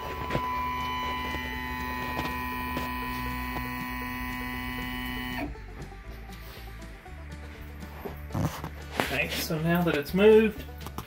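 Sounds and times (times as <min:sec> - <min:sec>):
stepper motors whining: 0:00.0 - 0:05.5.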